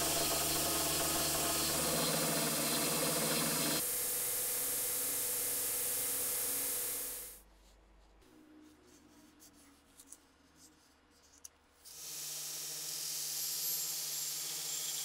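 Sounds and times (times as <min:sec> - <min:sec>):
belt grinder grinding steel: 0:00.0 - 0:03.8.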